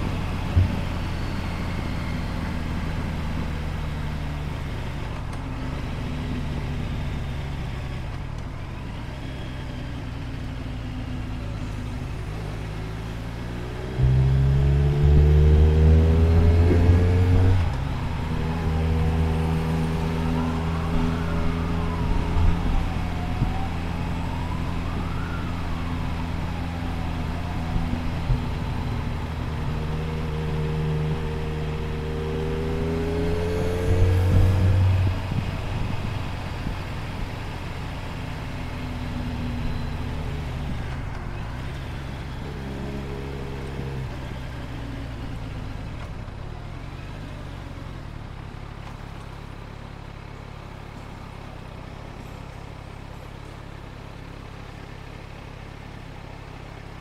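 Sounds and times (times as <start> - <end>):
motorcycle engine accelerating: 0.0 - 48.1
siren wailing: 13.8 - 36.8.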